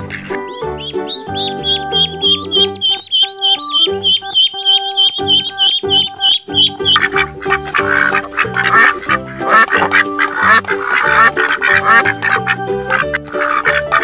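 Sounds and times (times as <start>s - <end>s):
background music: 0.0s - 14.0s
ducks quacking: 0.0s - 14.0s.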